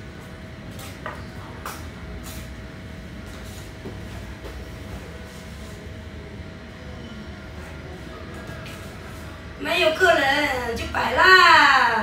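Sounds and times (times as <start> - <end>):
faint constant hum: 0.0 - 12.0
soft footsteps on tiled floor: 3.2 - 5.8.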